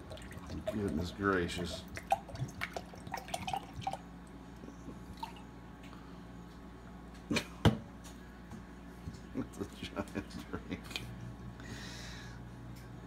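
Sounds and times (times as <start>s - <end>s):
liquid trickling into glass: 0.0s - 4.3s, 5.1s - 5.5s.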